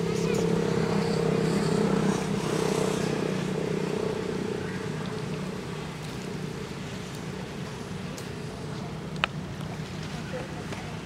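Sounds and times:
low motor hum: 0.0s - 10.4s
outdoor background noise: 0.0s - 11.0s.

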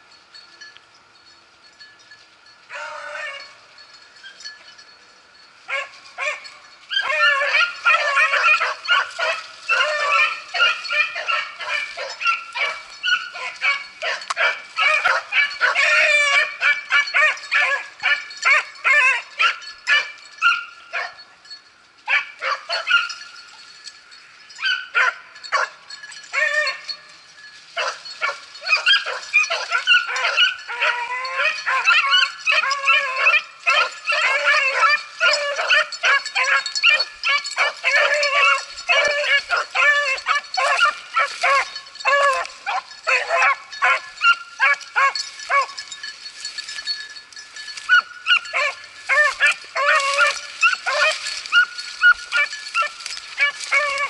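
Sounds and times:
beagles baying and yelping: 2.3s - 54.0s.

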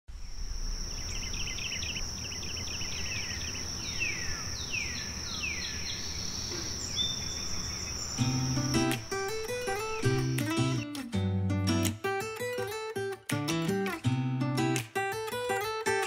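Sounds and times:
insect high-pitched trill: 0.2s - 10.8s
bird chirping and calling: 0.9s - 10.8s.

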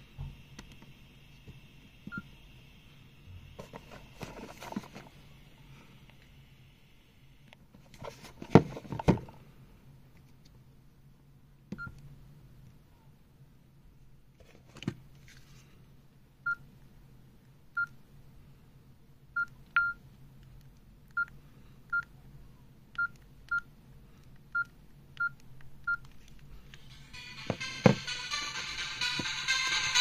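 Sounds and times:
keypad beeps: 19.4s - 20.0s.

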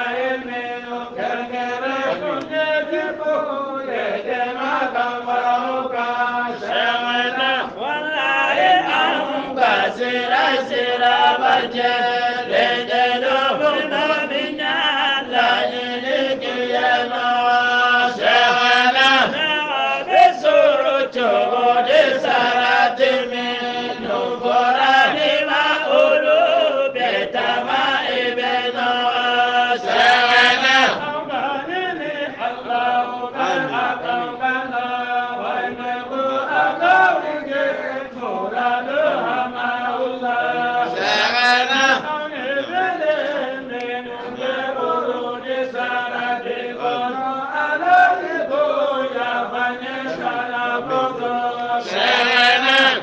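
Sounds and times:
person chanting devotional song: 0.0s - 53.0s.

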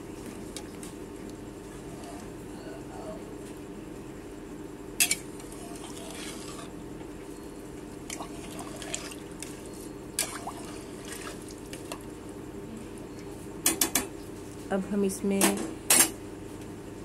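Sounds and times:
liquid sloshing in a pot: 5.0s - 6.7s, 7.9s - 12.2s.

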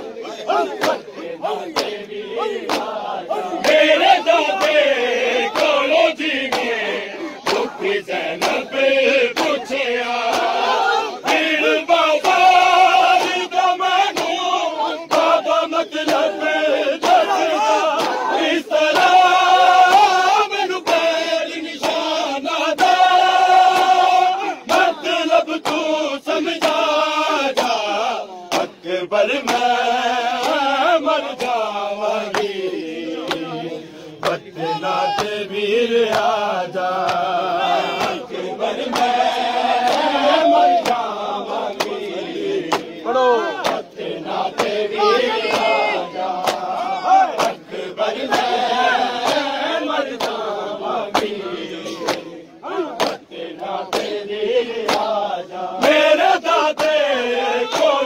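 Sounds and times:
men chanting: 0.0s - 58.0s
chest-beating slaps: 0.7s - 2.0s, 2.6s - 3.8s, 42.6s - 43.0s, 46.4s - 47.6s, 51.1s - 52.3s, 53.0s - 53.2s, 54.8s - 55.1s.

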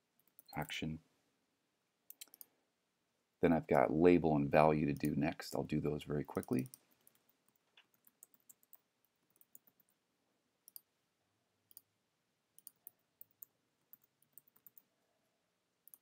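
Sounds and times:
keyboard typing clicks: 12.6s - 14.9s.

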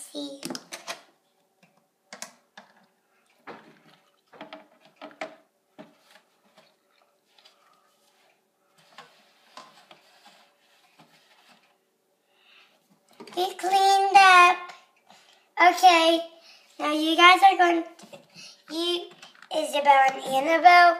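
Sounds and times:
plastic toys knocking and clattering: 2.1s - 6.6s, 18.0s - 20.4s.

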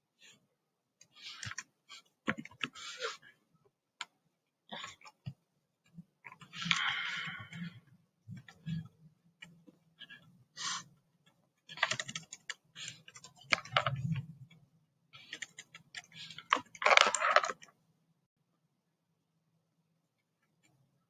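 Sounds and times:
typing on computer keyboard: 11.7s - 14.2s, 15.2s - 17.7s.

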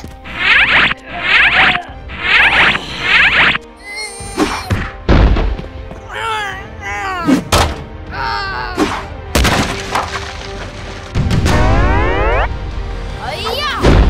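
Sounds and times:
music: 0.0s - 14.0s
hard thuds and impacts: 4.7s - 5.7s
bomb blast: 11.2s - 12.7s.

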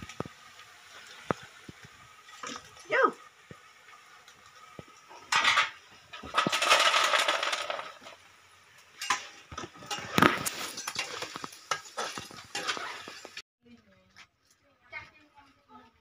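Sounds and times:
metal tongs clinking on a tray: 9.0s - 13.3s
dry rustle of fried crickets: 9.6s - 13.4s.

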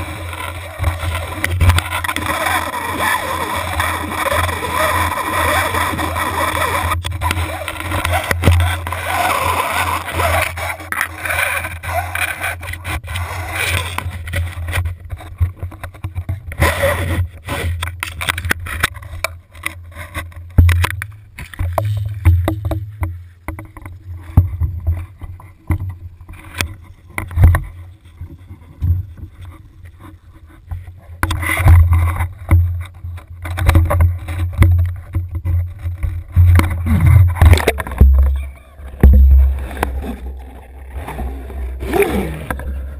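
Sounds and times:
steady low rumble: 35.3s - 42.9s.

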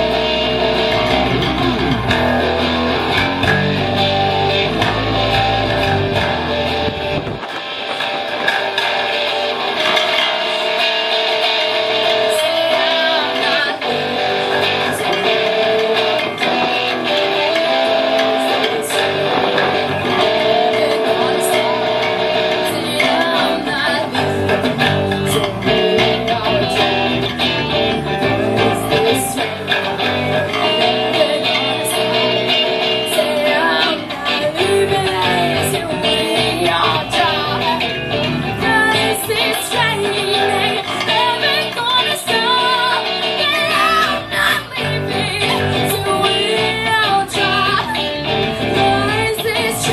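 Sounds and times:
electric bass guitar: 0.0s - 49.9s
electric guitar: 0.0s - 49.9s.

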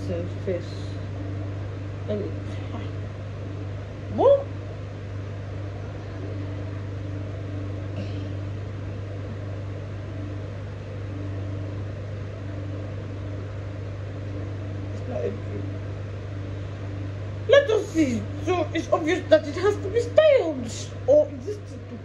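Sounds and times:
low mechanical hum: 0.0s - 22.0s.

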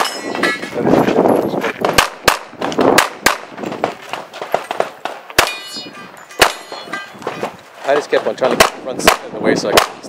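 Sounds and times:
metallic ring: 0.0s - 0.8s, 5.4s - 7.2s
pistol shots: 1.8s - 6.9s, 8.5s - 10.0s.

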